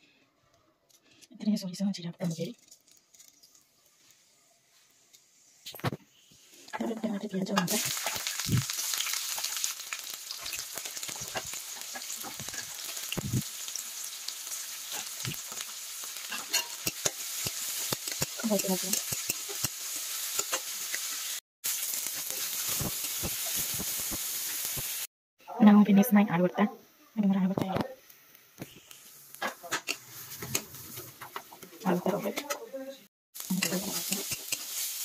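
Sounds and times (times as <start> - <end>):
vegetables sizzling in hot oil: 4.9 - 25.1, 28.0 - 31.6, 33.4 - 35.0
steel spatula scraping pan: 16.3 - 19.7, 29.6 - 31.2.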